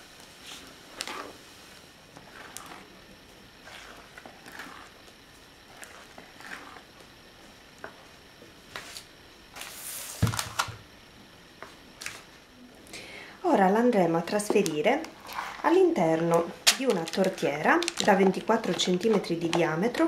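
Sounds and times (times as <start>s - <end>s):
spatula scraping in bowl: 2.2s - 2.9s, 3.6s - 4.9s, 5.7s - 6.9s.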